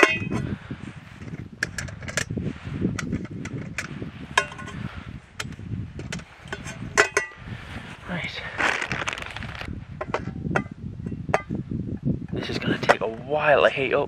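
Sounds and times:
metal cookware clinking: 0:00.0 - 0:00.4, 0:06.1 - 0:07.4
low steady rumble: 0:00.0 - 0:12.5.

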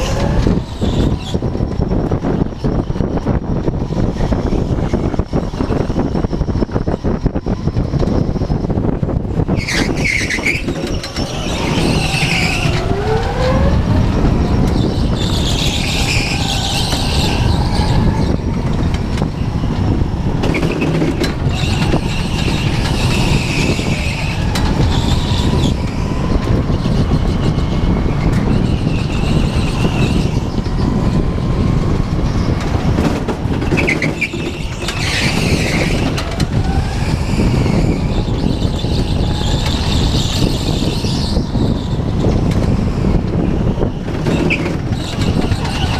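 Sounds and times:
go-kart motor drone: 0:00.0 - 0:45.9
tyres squealing: 0:09.6 - 0:19.7, 0:20.5 - 0:26.2, 0:33.5 - 0:42.0.

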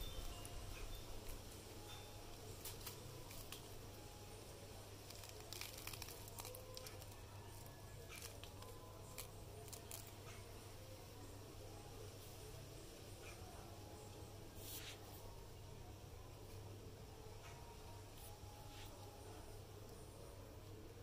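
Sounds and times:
onion skin crinkling and tearing: 0:02.6 - 0:04.0, 0:04.9 - 0:10.5.

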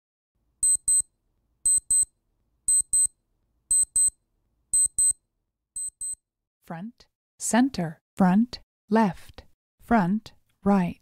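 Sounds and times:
high-pitched electronic double beeps: 0:00.6 - 0:01.0, 0:01.7 - 0:02.1, 0:02.7 - 0:03.1, 0:03.7 - 0:04.1, 0:04.8 - 0:05.2, 0:05.8 - 0:06.2.

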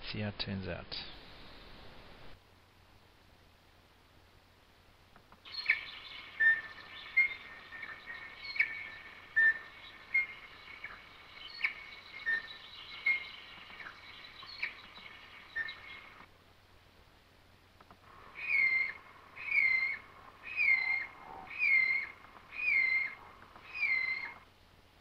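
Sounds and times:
kiwi whistling calls: 0:05.4 - 0:16.3, 0:18.0 - 0:24.4.

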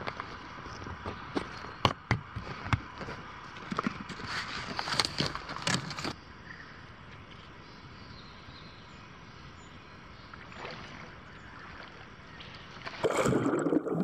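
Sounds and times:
footsteps on dirt and twigs: 0:00.0 - 0:06.2.

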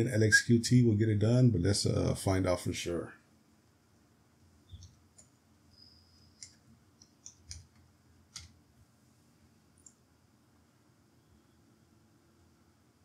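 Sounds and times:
low room hum: 0:00.0 - 0:13.0
typing on computer keyboard: 0:06.3 - 0:08.6.

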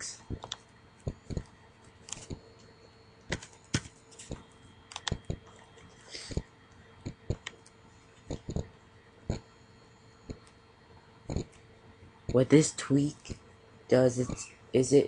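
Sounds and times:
keyboard and mouse clicks: 0:00.3 - 0:01.5, 0:02.1 - 0:02.4, 0:03.3 - 0:06.4, 0:07.0 - 0:08.7, 0:11.3 - 0:11.6.

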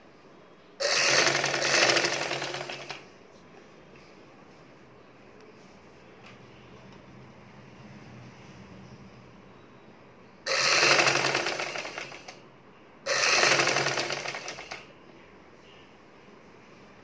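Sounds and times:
sewing machine stitching: 0:00.8 - 0:03.0, 0:10.5 - 0:12.4, 0:13.1 - 0:14.9.

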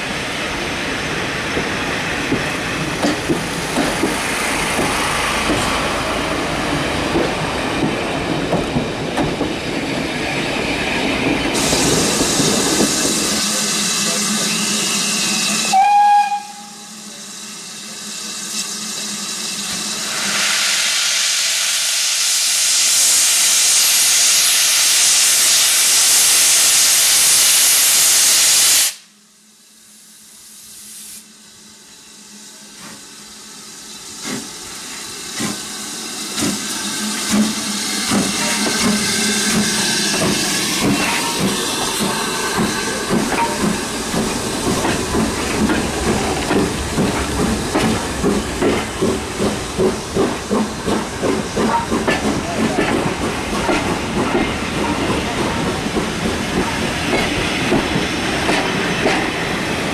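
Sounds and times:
steam locomotive exhaust beats: 0:00.5 - 0:59.9
steam blowing off: 0:11.2 - 0:29.1, 0:30.0 - 0:59.9.

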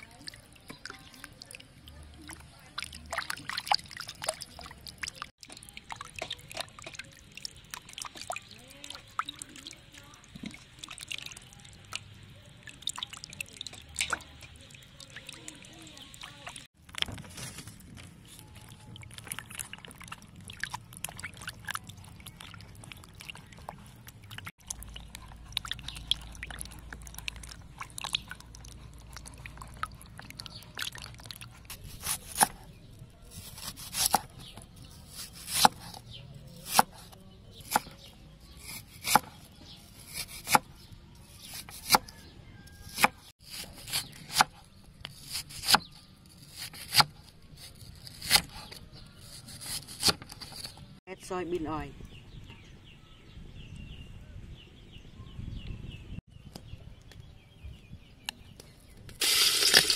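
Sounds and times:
water splashing in basin: 0:00.0 - 0:17.0, 0:18.6 - 0:32.3.

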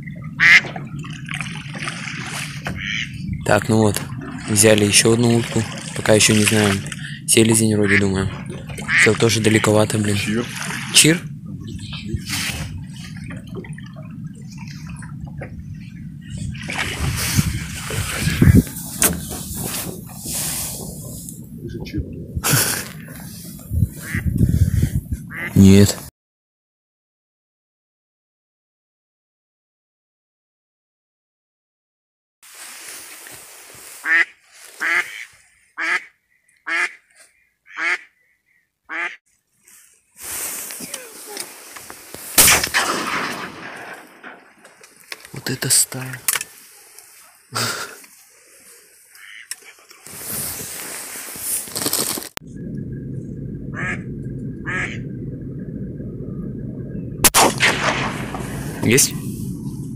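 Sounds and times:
water lapping against boat: 0:00.1 - 0:24.5
duck quacking loudly: 0:00.4 - 0:00.7, 0:02.8 - 0:03.1, 0:24.0 - 0:24.3, 0:25.3 - 0:25.6, 0:34.0 - 0:36.1, 0:36.7 - 0:37.0, 0:37.7 - 0:38.1, 0:38.9 - 0:39.2, 0:49.2 - 0:49.5, 0:53.8 - 0:54.0, 0:54.7 - 0:55.0.

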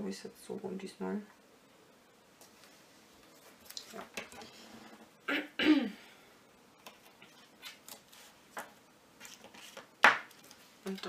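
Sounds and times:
person clearing throat: 0:05.3 - 0:06.0.

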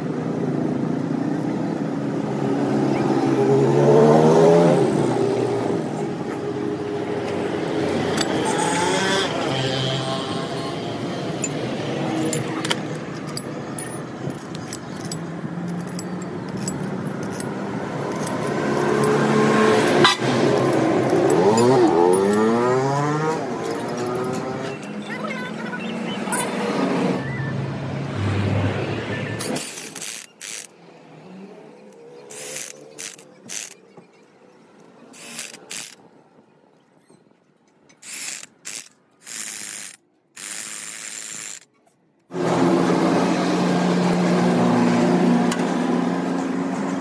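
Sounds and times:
metallic clinks of steel bolts: 0:12.2 - 0:24.6
electric impact wrench hammering: 0:35.2 - 0:36.0, 0:38.0 - 0:41.7.

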